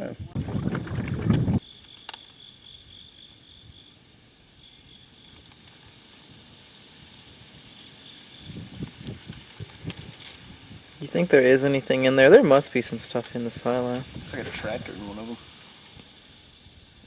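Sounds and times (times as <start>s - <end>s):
high insect drone: 0.0s - 17.0s
steady hiss: 0.0s - 17.0s
low bumps: 0.2s - 1.6s.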